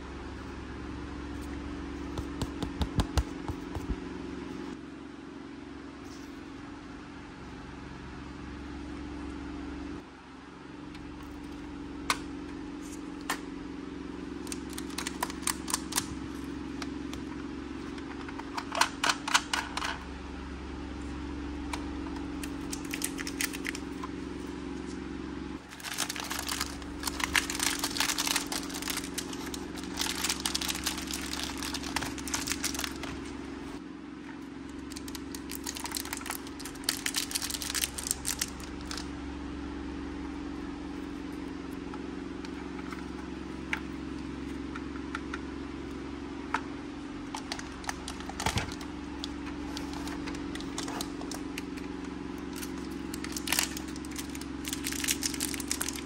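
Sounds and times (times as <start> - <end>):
steady low hum: 0.0 - 56.0
plastic wrappers crinkling: 14.4 - 16.2, 22.4 - 24.0, 25.6 - 33.4, 34.8 - 39.1, 47.4 - 51.7, 52.5 - 56.0.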